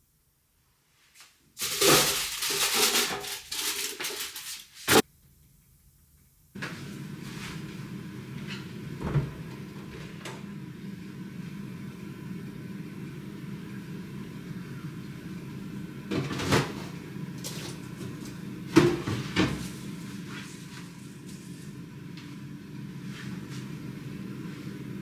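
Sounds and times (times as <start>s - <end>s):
items handled in refrigerator: 1.6s - 5.0s, 16.1s - 22.4s.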